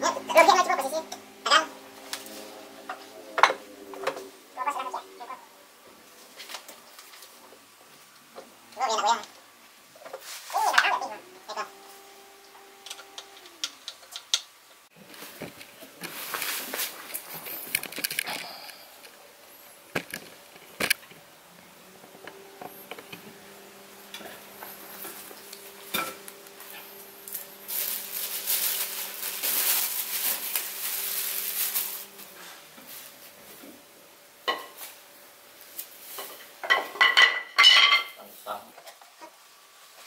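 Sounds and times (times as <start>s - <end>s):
faint steady hum: 0.0s - 40.0s
rustling: 15.0s - 21.1s, 22.3s - 33.8s.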